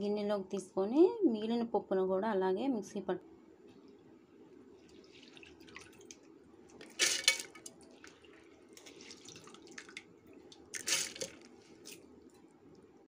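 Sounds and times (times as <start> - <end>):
water trickling and dripping: 4.8 - 13.0
wet rice pouring into steel jar: 10.8 - 11.5.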